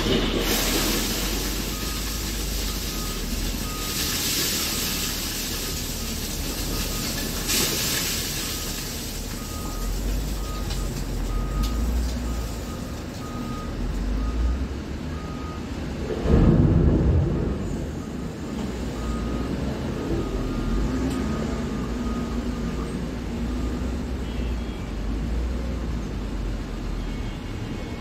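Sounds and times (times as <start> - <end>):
engine rumbling: 0.0 - 27.0
reversing alarm beeping: 0.5 - 7.7, 8.3 - 15.7, 17.2 - 24.4.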